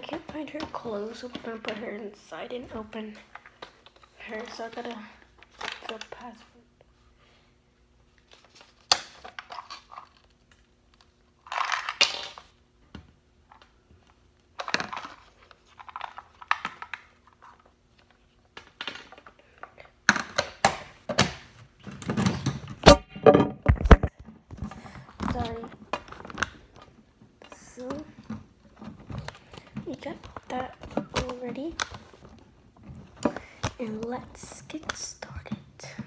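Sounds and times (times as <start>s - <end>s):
plastic crinkling and clicking: 23.6s - 35.6s.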